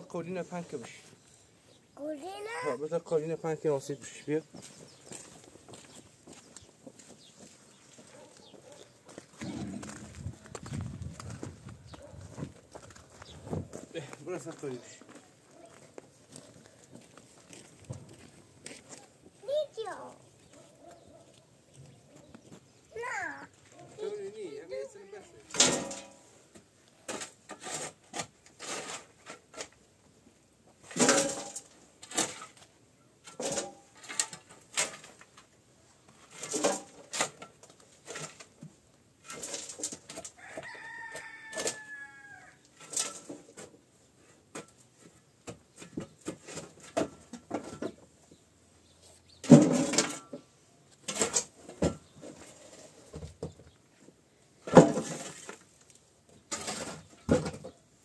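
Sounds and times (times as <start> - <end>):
rubble clattering into metal wheelbarrow: 25.5 - 26.3, 27.0 - 29.8, 30.8 - 35.5, 36.2 - 40.4, 42.7 - 43.8, 44.5 - 48.0, 49.4 - 53.5, 54.6 - 55.8, 56.4 - 57.8
shovel scraping concrete and dirt: 25.5 - 26.3, 27.0 - 29.8, 30.8 - 35.3, 36.2 - 38.6, 39.2 - 40.4, 42.7 - 43.7, 49.4 - 50.4, 51.0 - 53.1, 54.6 - 55.8, 56.4 - 57.7
rooster crowing: 40.4 - 42.6.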